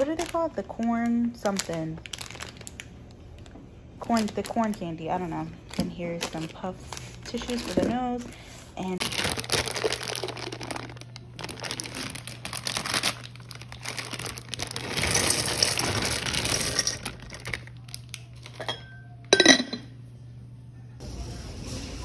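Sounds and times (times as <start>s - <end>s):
plastic bag crinkling: 0.0s - 18.8s
candies pattering against glass: 8.9s - 18.8s.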